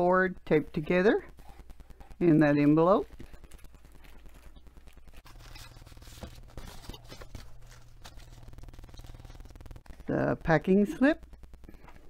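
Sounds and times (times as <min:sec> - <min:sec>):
cardboard and paper rustling: 0:03.2 - 0:09.5.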